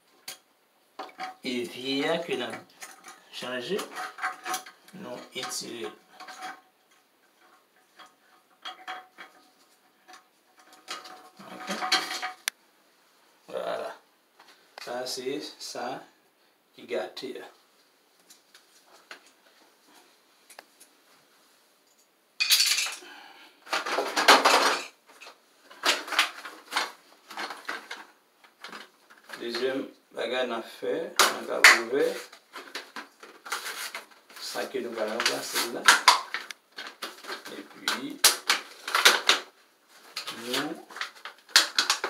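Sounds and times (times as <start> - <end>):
packaging rustling and crinkling: 23.7 - 29.7, 31.2 - 42.0.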